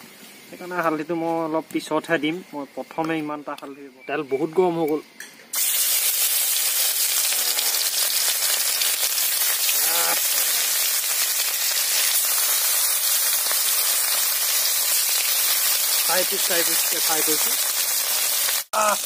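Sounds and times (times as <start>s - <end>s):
fish sizzling in hot oil: 5.5s - 19.0s.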